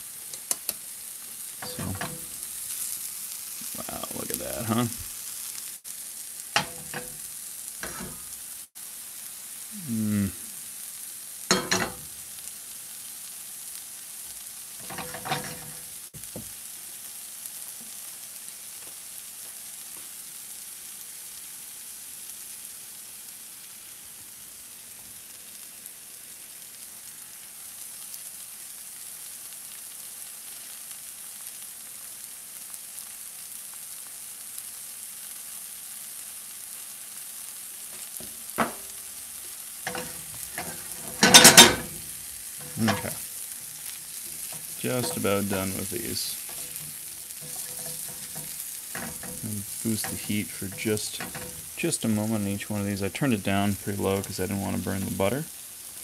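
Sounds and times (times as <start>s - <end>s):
mushrooms sizzling in frying pan: 0.0s - 56.0s
pans scraping and knocking: 1.6s - 2.5s, 6.6s - 8.3s, 11.5s - 12.1s, 14.8s - 16.4s, 38.2s - 38.9s, 39.9s - 43.3s, 44.3s - 51.8s.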